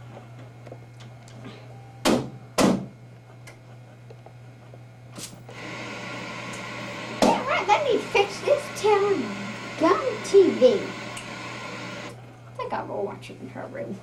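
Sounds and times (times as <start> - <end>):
loud knocks on television: 2.0 - 2.9.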